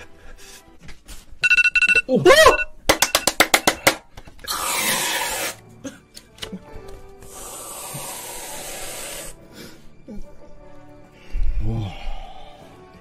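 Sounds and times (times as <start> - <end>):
hand claps: 2.9 - 4.3
whipped cream can hissing: 4.4 - 5.6, 7.2 - 9.4.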